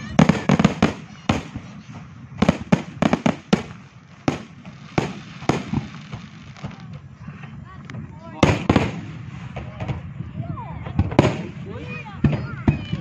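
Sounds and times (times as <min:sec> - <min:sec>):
firework shells bursting: 0:00.1 - 0:07.1, 0:08.4 - 0:10.1.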